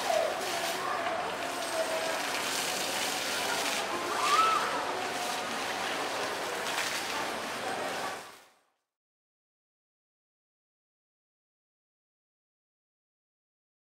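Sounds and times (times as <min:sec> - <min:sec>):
distant murmur of voices: 0:00.0 - 0:08.5.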